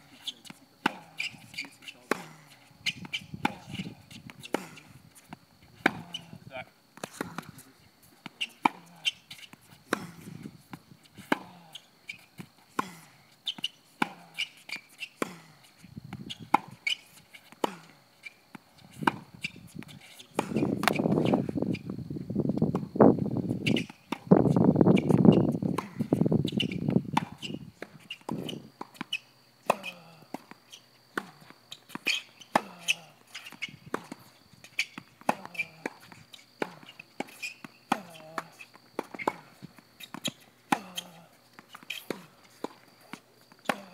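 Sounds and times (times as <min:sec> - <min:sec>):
tennis ball hitting racket: 0:00.4 - 0:04.9, 0:05.8 - 0:06.4, 0:08.2 - 0:21.4, 0:25.0 - 0:43.9.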